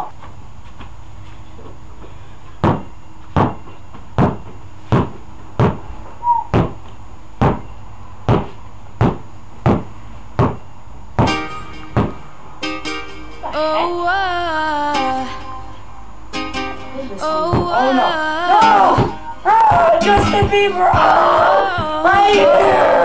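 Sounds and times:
basketball bouncing on indoor floor: 2.6 - 3.6, 4.2 - 5.9, 6.5 - 6.8, 7.4 - 10.6.

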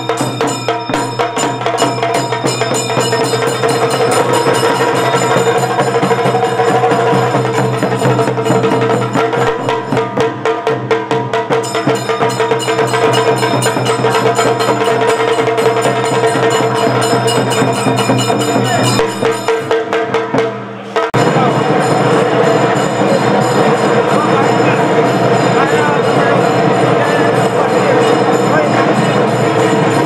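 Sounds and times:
steady held tone: 0.0 - 10.2, 11.6 - 19.9
drum ensemble beating fast rhythm: 0.0 - 30.0.

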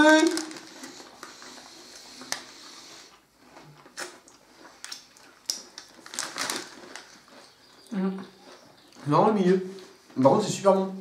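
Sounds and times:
plastic wrapper crinkling: 0.0 - 2.5, 4.8 - 7.6.

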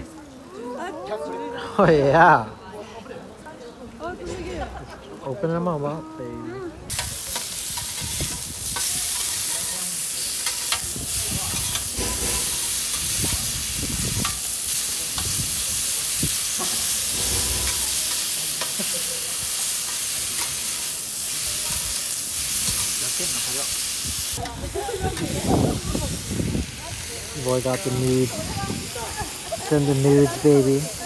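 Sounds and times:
meat sizzling on griddle: 6.9 - 31.0
spatula scraping metal plate: 11.7 - 13.0, 17.1 - 18.2.

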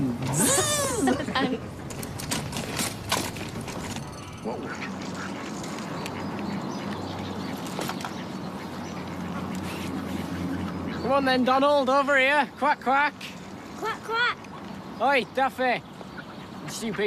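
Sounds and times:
ducks quacking: 4.4 - 12.2, 16.0 - 17.0.

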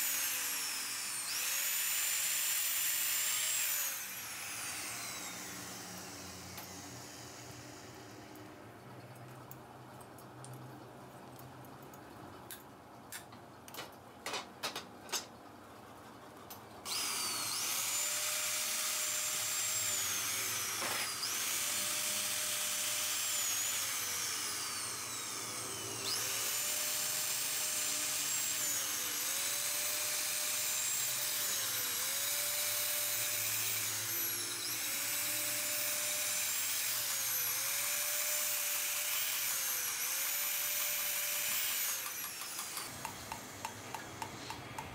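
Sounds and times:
power drill whining: 0.0 - 8.3, 16.9 - 44.6.

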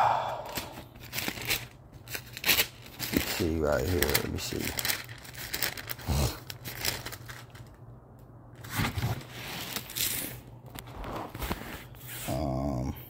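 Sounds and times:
book pages turning: 0.5 - 7.6, 8.6 - 12.4.

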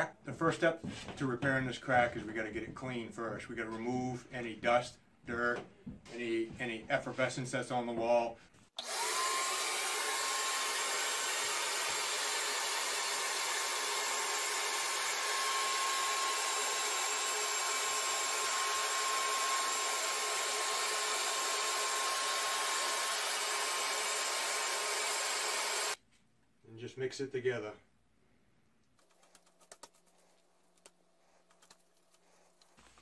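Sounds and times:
handheld vacuum whining: 8.8 - 26.0.

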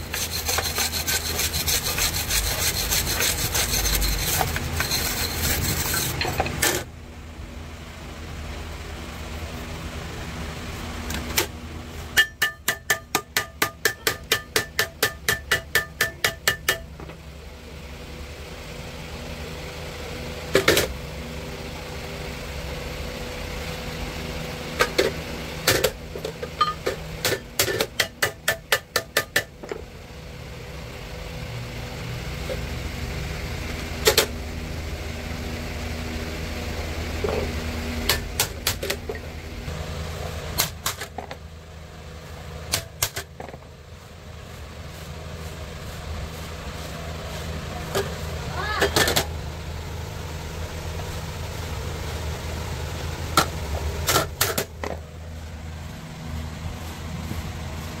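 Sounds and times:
hammer clanging on metal: 12.2 - 16.9.

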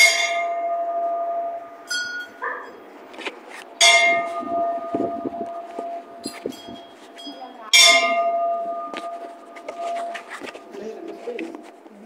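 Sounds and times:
small high-pitched bell: 0.0 - 2.8, 3.8 - 10.2
temple bell ringing: 0.0 - 2.8, 3.8 - 10.8.

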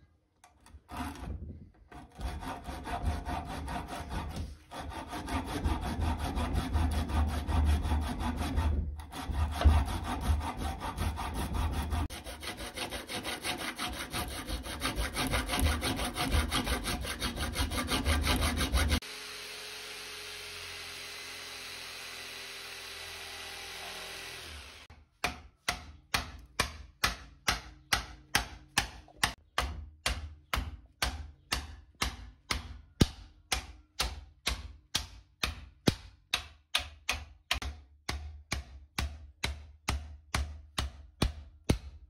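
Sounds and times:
electric jigsaw cutting: 18.2 - 24.9
sharp evenly spaced taps: 25.2 - 41.9.

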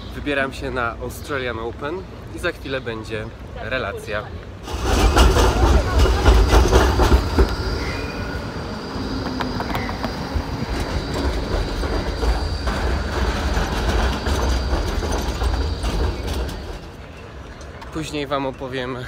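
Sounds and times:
clicks of tram wheels: 4.4 - 8.4, 9.1 - 19.0
low rumble: 4.6 - 17.0
tram wheels whining on rails: 4.6 - 19.0.

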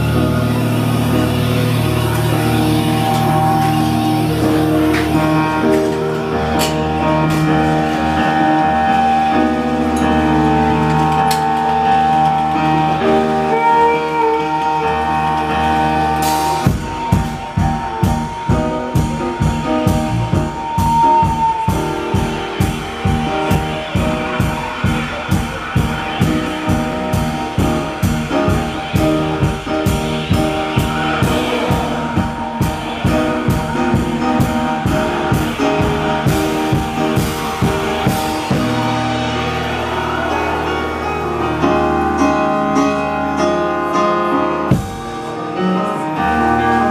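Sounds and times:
electric guitar chords: 0.0 - 46.9
keyboard chords: 0.0 - 46.9
driving drum beat: 16.2 - 41.6, 44.7 - 45.4.

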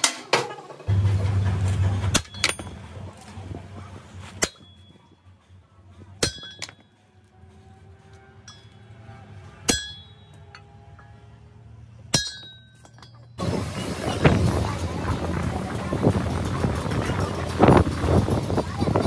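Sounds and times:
hammer striking steel: 0.0 - 3.0, 4.3 - 5.1, 6.2 - 7.0, 8.4 - 11.4, 12.1 - 13.4.

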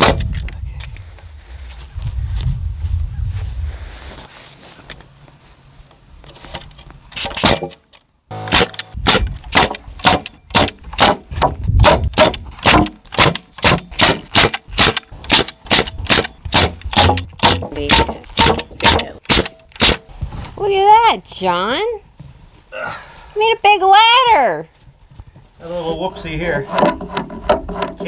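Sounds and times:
pneumatic nailer firing nails: 7.2 - 20.1.

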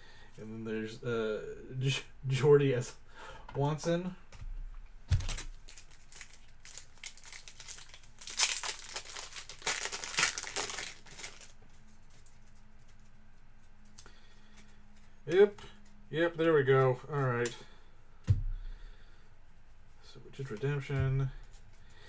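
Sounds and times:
wrapper crinkling and tearing: 5.1 - 12.2.

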